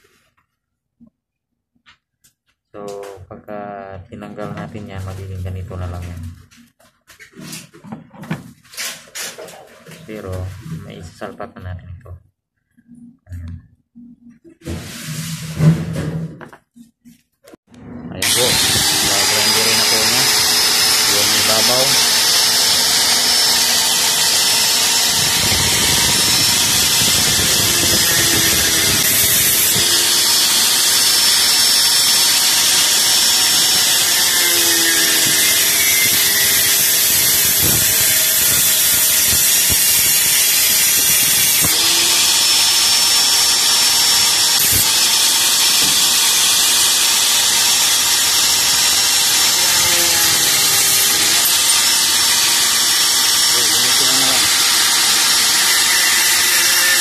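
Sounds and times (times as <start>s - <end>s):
angle grinder grinding plastic: 18.1s - 57.0s.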